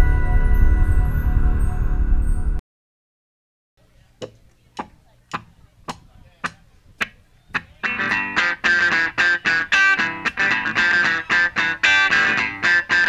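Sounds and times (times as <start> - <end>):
bell-like ambient music: 0.0 - 2.6
funk band playing: 4.3 - 13.0.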